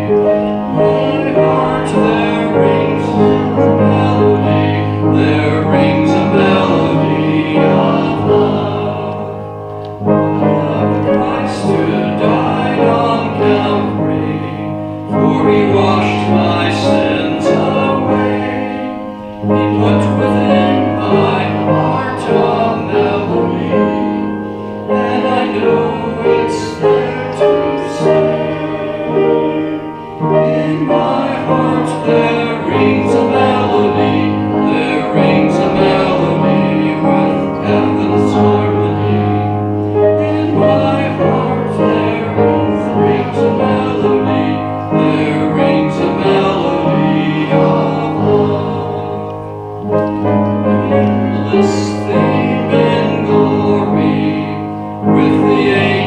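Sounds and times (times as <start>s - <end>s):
congregation singing a hymn: 0.0s - 56.0s
keyboard accompaniment: 0.0s - 56.0s.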